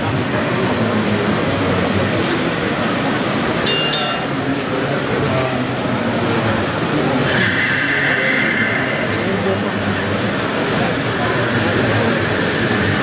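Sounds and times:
crowd chatter: 0:00.0 - 0:13.0
high-pitched squeal: 0:07.1 - 0:09.9.

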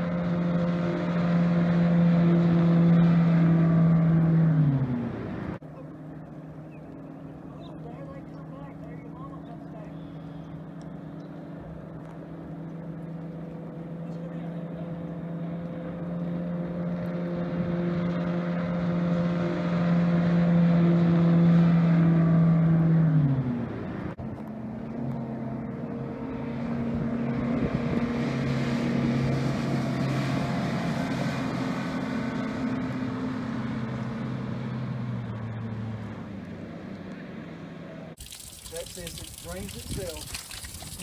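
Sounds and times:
outboard motor running: 0:00.0 - 0:22.2, 0:38.2 - 0:41.0.

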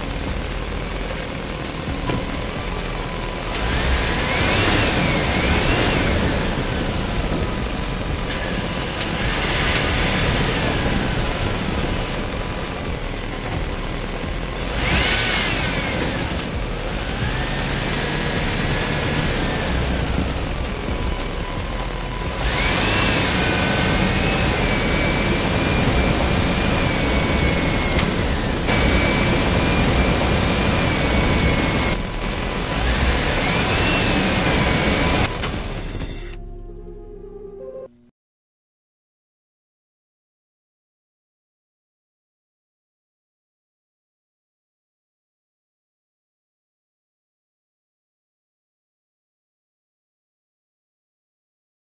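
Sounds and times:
rc truck motors and gears: 0:00.0 - 0:36.4.

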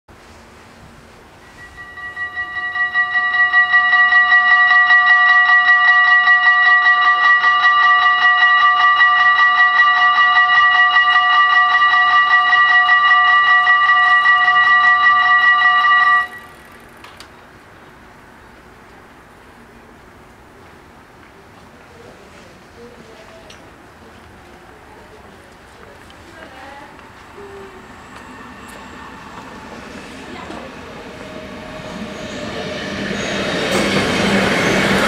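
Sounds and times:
level crossing bells ringing: 0:01.4 - 0:16.9, 0:26.4 - 0:35.0.

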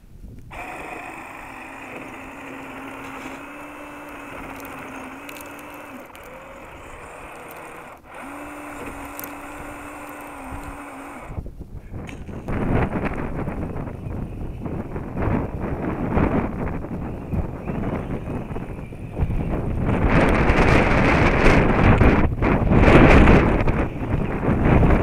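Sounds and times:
electric motor and gears whining: 0:00.4 - 0:25.0.

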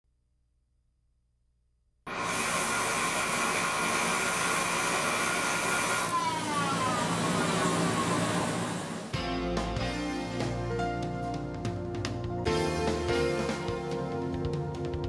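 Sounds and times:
power grinder grinding: 0:02.1 - 0:09.1.

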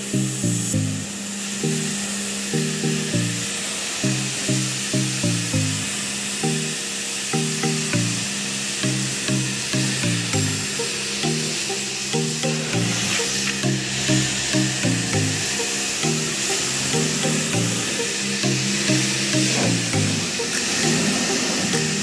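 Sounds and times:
background music with low notes: 0:00.0 - 0:22.0
pressure washer spraying water: 0:02.6 - 0:06.8, 0:08.8 - 0:22.0.

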